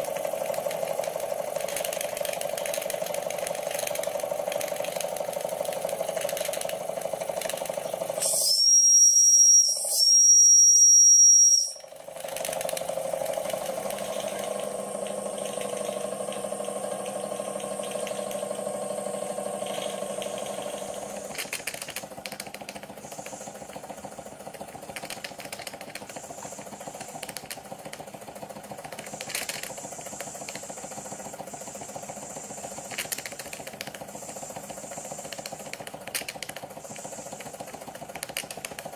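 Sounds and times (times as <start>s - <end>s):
model steam engine running: 0.0s - 38.9s
high-pitched steam whistle: 8.1s - 12.0s.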